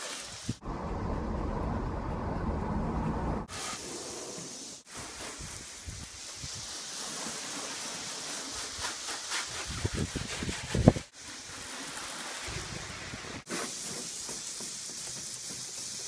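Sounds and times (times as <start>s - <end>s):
hose spraying water on car: 0.0s - 0.6s, 3.5s - 16.0s
muffled rumble in car cabin: 0.6s - 3.5s.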